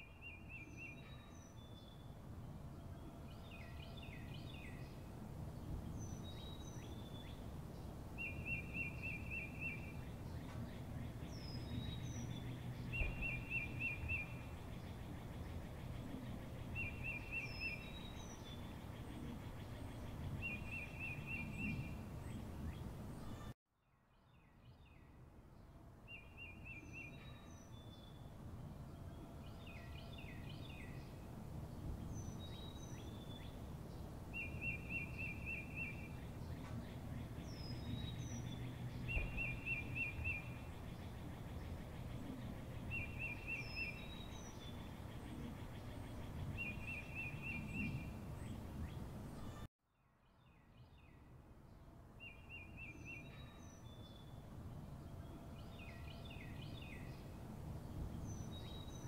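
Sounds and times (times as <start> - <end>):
steady outdoor rumble: 1.0 - 23.5, 27.8 - 49.7.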